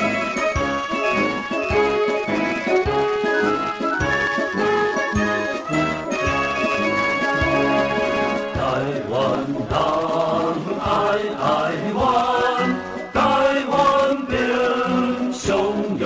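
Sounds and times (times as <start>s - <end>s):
group singing slow chant: 8.5s - 16.0s.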